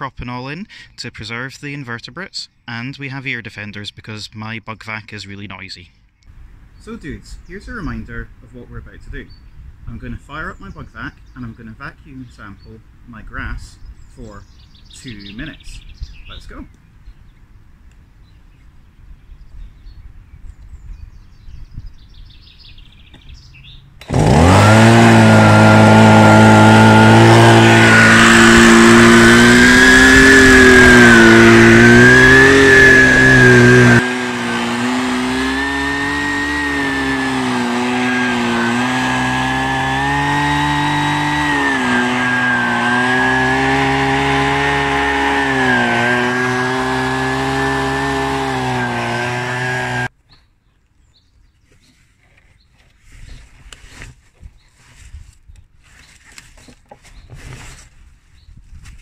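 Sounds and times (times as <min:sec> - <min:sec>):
leaf vacuum engine running: 0:24.0 - 0:50.1.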